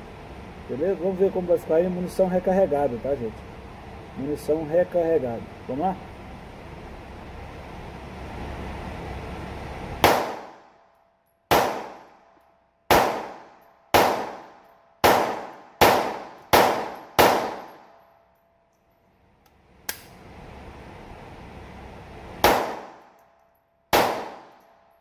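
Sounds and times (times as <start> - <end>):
pistol shots echoing: 10.0 - 10.7, 11.5 - 12.3, 12.9 - 18.0, 22.4 - 23.2, 23.9 - 24.7
light metallic click: 18.7 - 20.2.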